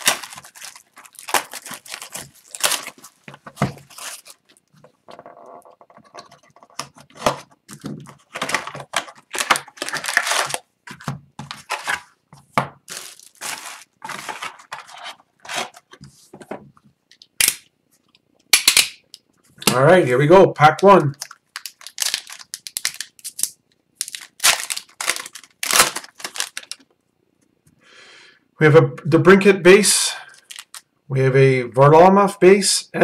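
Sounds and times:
cardboard box and foil rustling: 0.0 - 4.6, 7.0 - 12.2, 12.9 - 16.0, 21.6 - 26.8, 30.4 - 30.8
plastic shrink wrap tearing: 0.0 - 4.6, 7.2 - 10.7, 12.9 - 15.8, 21.0 - 26.8, 30.4 - 30.8.

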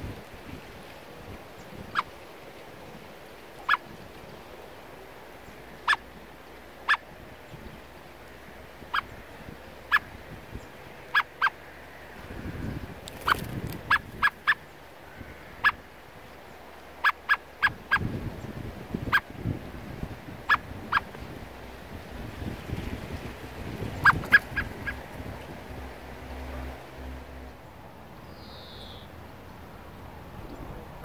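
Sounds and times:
wind rumbling on microphone: 0.0 - 16.9, 17.5 - 27.8, 29.5 - 31.0
blackbird chuck calls: 24.0 - 25.0.

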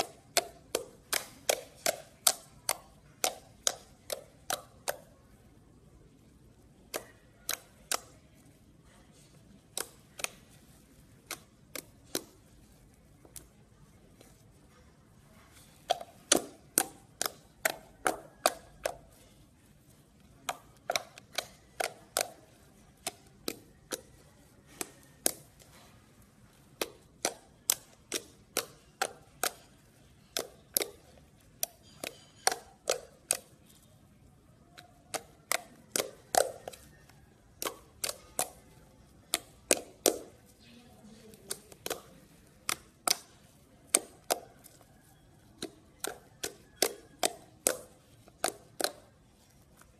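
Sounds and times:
slime popping and clicking: 26.6 - 33.9, 39.2 - 49.9.

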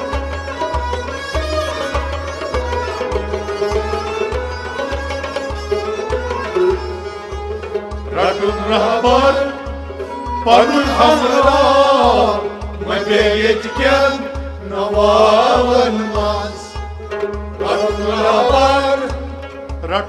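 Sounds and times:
bowed string instruments: 0.0 - 20.0
steady low drum beat: 7.7 - 20.0
men singing folk song: 8.1 - 9.7, 10.4 - 16.8, 17.6 - 19.4.

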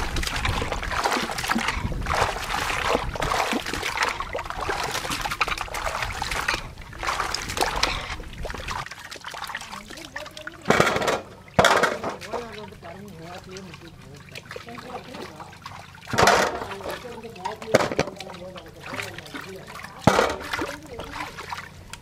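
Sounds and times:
low rumble: 0.0 - 8.8
water splashing and trickling: 0.0 - 22.0.

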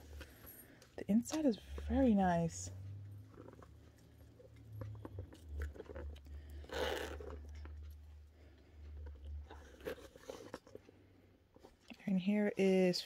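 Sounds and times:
low steady hum: 0.0 - 13.0
handbag clicks and rustles: 3.3 - 8.0.

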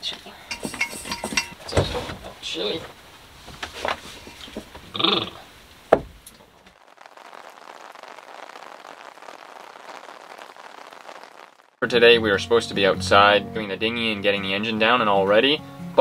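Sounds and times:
rain pouring on a boat: 1.8 - 11.8.

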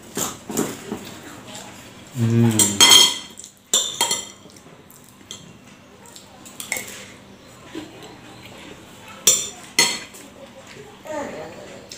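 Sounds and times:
low vocal sound: 2.1 - 2.9.

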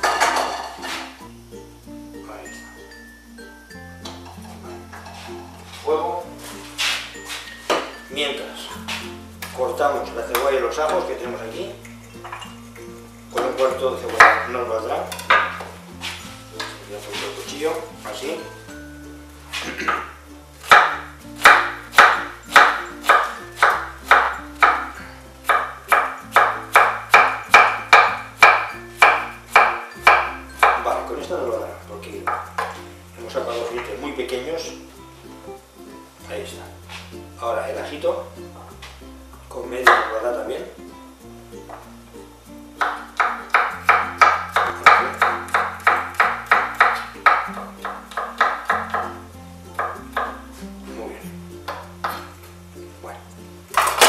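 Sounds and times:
knife chopping on cutting board: 19.5 - 30.9, 42.8 - 49.0.

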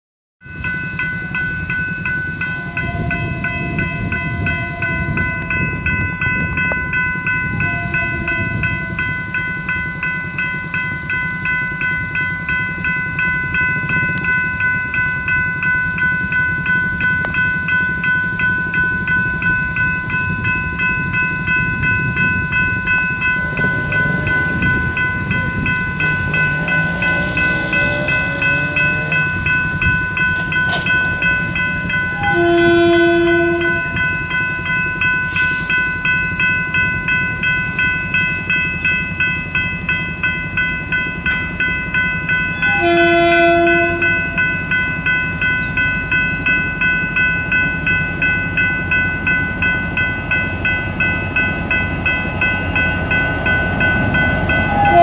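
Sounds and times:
level crossing warning bell ringing: 0.4 - 55.0
car passing over crossing: 22.6 - 31.4.

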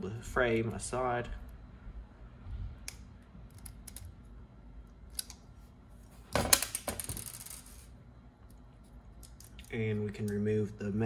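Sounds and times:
small plastic parts clicking: 2.9 - 4.1.

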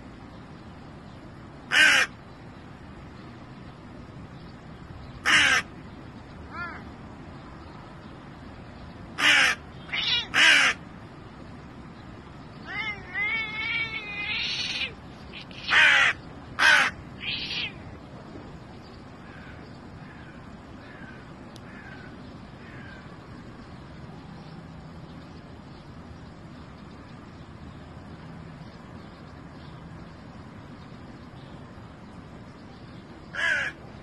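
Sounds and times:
crow cawing: 1.7 - 2.1, 5.2 - 5.7, 9.2 - 10.8, 15.6 - 17.8, 19.2 - 23.1, 33.3 - 33.8
crow wavering call: 9.2 - 10.8, 12.7 - 17.8, 33.4 - 33.8.

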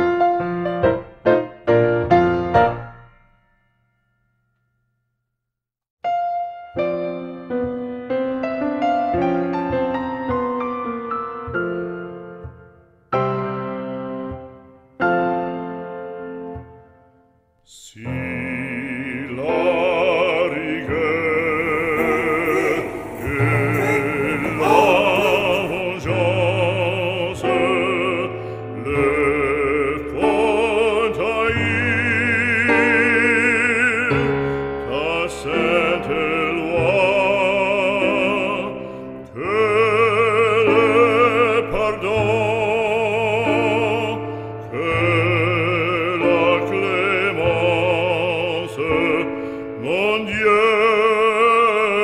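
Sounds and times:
operatic singing with vibrato: 17.7 - 34.1, 49.8 - 52.0.

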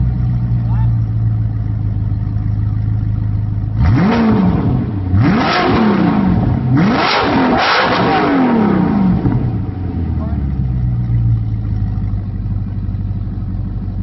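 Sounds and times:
car engine idling and revving: 0.0 - 14.0.

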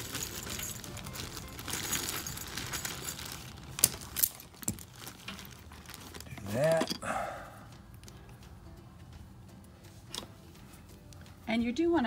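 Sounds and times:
handling and rustling: 0.0 - 7.0.

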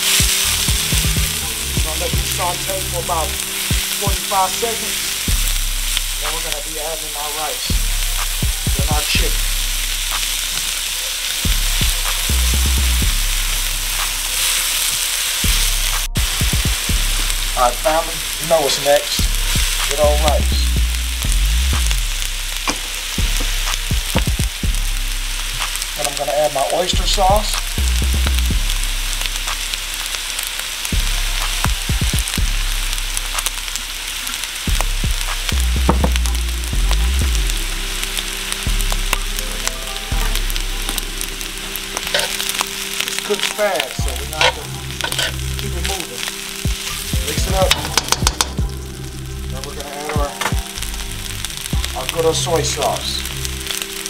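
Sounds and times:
onions sizzling in a wok: 0.0 - 54.0
spatula scraping a wok: 41.6 - 43.6, 44.2 - 48.3.

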